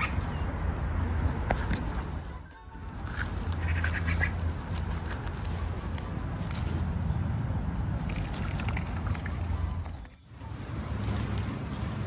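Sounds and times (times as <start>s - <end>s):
ducks calling: 0.0s - 0.3s, 3.0s - 4.5s
steady low rumble: 0.0s - 10.2s.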